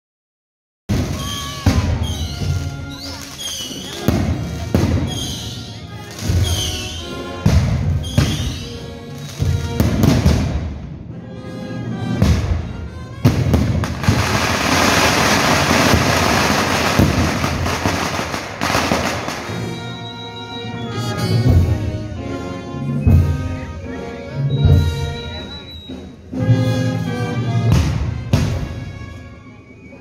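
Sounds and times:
firecracker bangs echoing: 0:00.9 - 0:10.8, 0:12.2 - 0:19.9
string of firecrackers crackling: 0:00.9 - 0:11.0, 0:12.2 - 0:20.2
band music: 0:00.9 - 0:30.0.

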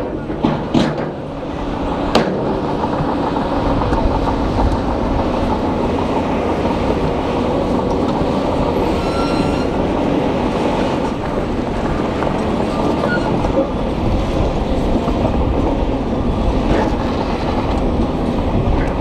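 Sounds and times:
bulldozer diesel engine under load: 0:00.0 - 0:19.0
steel tracks clanking and grinding: 0:00.0 - 0:19.0
brief high squeak: 0:08.8 - 0:09.9, 0:12.7 - 0:13.6.

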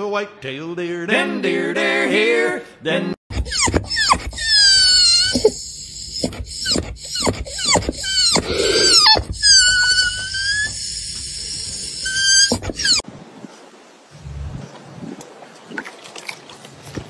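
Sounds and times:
dog whining: 0:03.3 - 0:13.0.

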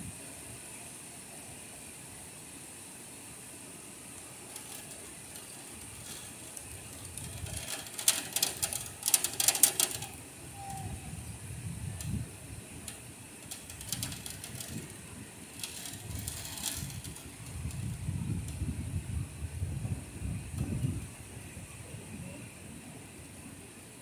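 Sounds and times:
heavy rain hissing: 0:00.0 - 0:24.0
raindrops pattering on stone ledge: 0:04.4 - 0:10.2, 0:12.8 - 0:18.0.

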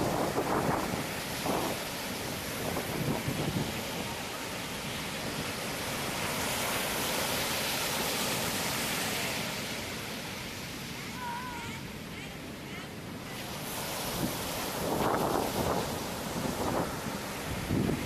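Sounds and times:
ocean surf rushing: 0:00.0 - 0:18.0.

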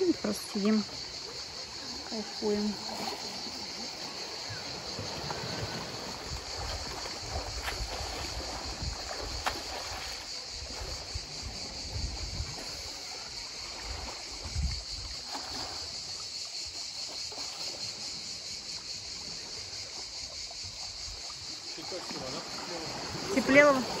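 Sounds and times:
high insect buzz: 0:00.0 - 0:24.0
water lapping among rocks: 0:00.0 - 0:24.0
wind rumbling on microphone: 0:04.6 - 0:15.8.

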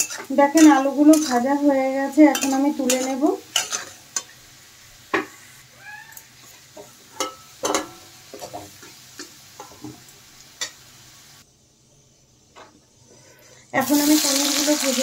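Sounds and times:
metal spatula scraping pan: 0:00.0 - 0:01.6, 0:02.2 - 0:04.3
oil sizzling in a pan: 0:00.0 - 0:15.0.

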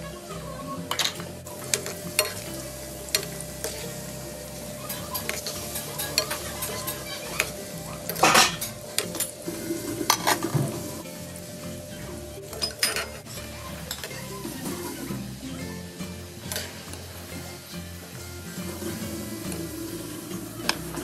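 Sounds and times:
food sizzling in hot oil: 0:00.0 - 0:21.0
metal tongs clinking on pan: 0:00.9 - 0:04.0, 0:04.8 - 0:09.4, 0:12.5 - 0:14.9, 0:16.5 - 0:17.0.

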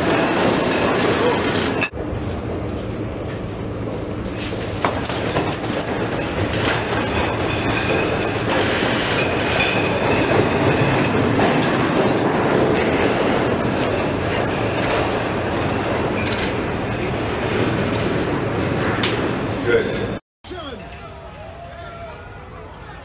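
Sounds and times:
subway train rumbling: 0:00.0 - 0:20.2.

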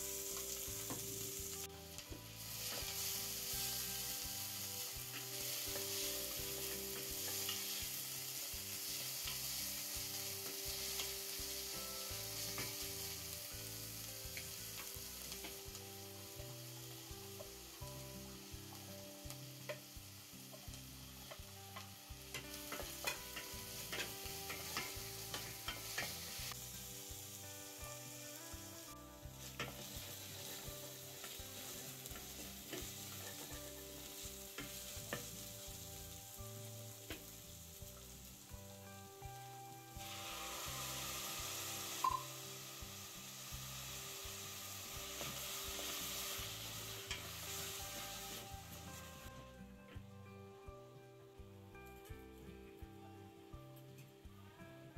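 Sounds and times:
aromatics sizzling in hot oil: 0:00.0 - 0:49.6.

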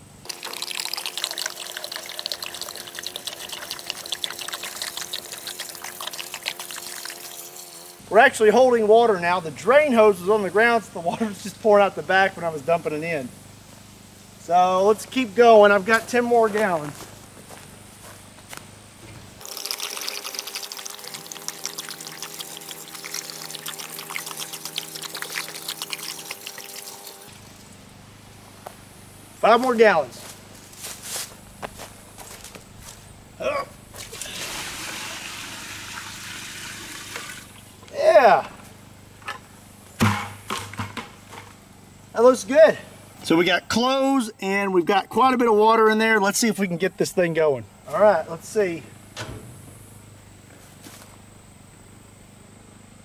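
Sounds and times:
water pouring into washing machine: 0:00.3 - 0:05.1, 0:34.2 - 0:37.5
water pouring into washing machine tub: 0:00.3 - 0:07.1, 0:19.4 - 0:27.2, 0:34.2 - 0:37.5.

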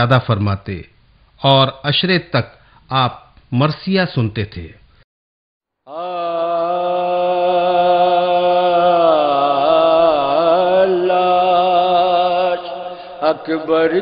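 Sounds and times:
person singing long wavering note: 0:05.9 - 0:14.0.

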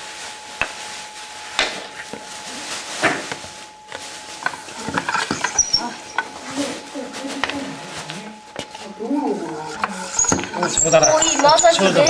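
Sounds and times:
fire drill spindle grinding: 0:03.7 - 0:12.0.

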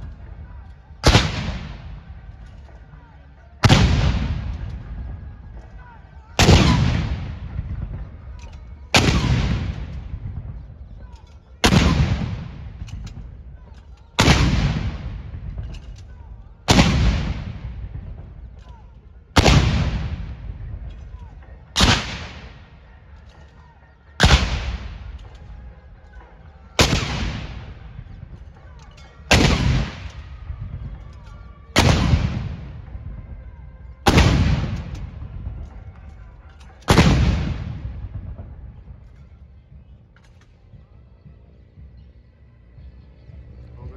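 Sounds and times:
field gun booms: 0:01.0 - 0:02.1, 0:03.6 - 0:05.1, 0:06.4 - 0:10.9, 0:11.6 - 0:21.0, 0:21.7 - 0:22.7, 0:24.2 - 0:25.3, 0:26.8 - 0:28.3, 0:29.3 - 0:30.9, 0:31.7 - 0:33.1, 0:34.0 - 0:36.0, 0:36.8 - 0:39.0.

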